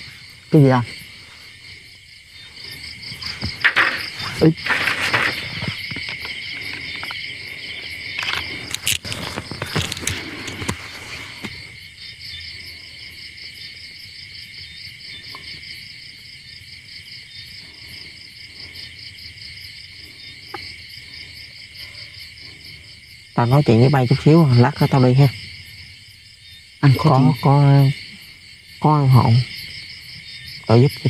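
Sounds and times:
crickets chirring: 0.0s - 31.0s
handling knocks and rustles: 3.1s - 7.2s, 8.2s - 11.6s.

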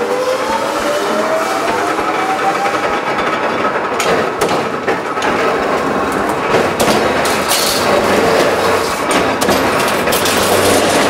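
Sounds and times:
mechanical shear clanking: 2.9s - 11.0s.

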